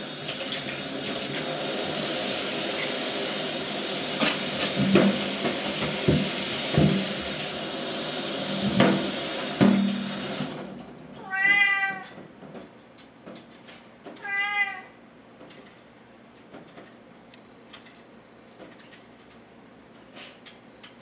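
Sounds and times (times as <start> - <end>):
kitchen tap running: 0.0 - 11.0
sharp knocks and clatters: 4.2 - 7.1
cat meowing: 11.2 - 12.2, 14.2 - 15.0.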